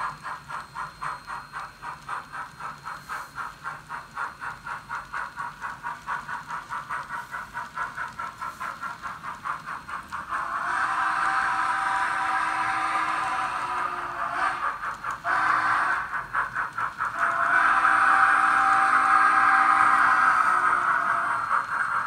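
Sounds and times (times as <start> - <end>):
model train steam chuffing: 0.0 - 22.0
loud steady sound: 8.0 - 22.0.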